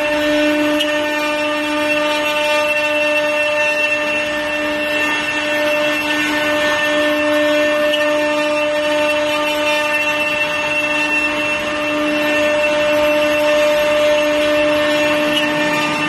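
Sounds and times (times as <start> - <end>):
wood router spindles whining: 0.0 - 16.0.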